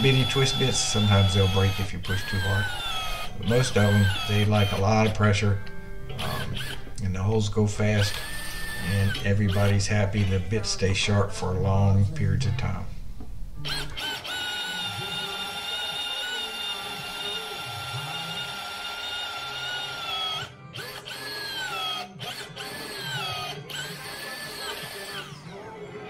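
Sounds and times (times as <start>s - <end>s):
drill press motor whining: 0.0s - 11.0s, 13.0s - 25.7s.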